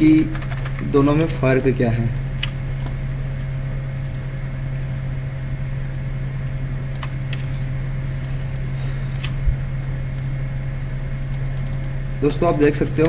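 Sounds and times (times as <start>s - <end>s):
high whine: 0.0s - 13.0s
low electrical hum: 0.0s - 13.0s
computer mouse clicks: 6.9s - 9.4s, 11.3s - 11.9s.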